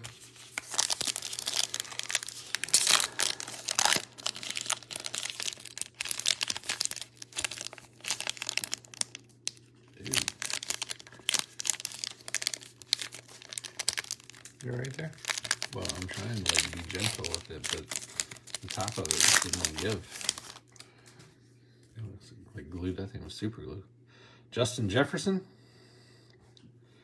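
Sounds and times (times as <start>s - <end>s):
foil wrapper crinkling and tearing: 0.0s - 20.9s.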